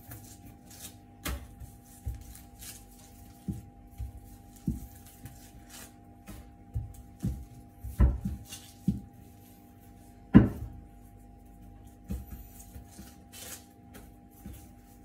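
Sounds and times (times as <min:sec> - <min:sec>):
hands knocking dough on board: 0:03.3 - 0:05.5, 0:06.2 - 0:09.2, 0:10.3 - 0:10.8.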